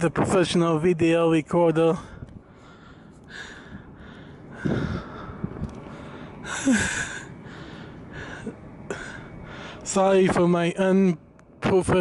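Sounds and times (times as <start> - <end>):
person breathing heavily: 2.0 - 9.9
person sighing: 6.4 - 7.3.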